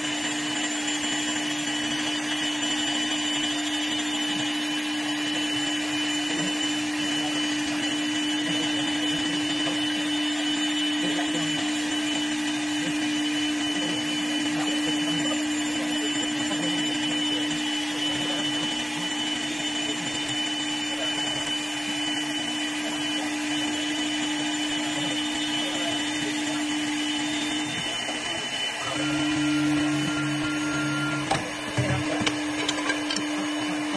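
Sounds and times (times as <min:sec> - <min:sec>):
cutter shaving wood: 0:00.0 - 0:33.9
wood lathe motor hum and whine: 0:00.0 - 0:33.9.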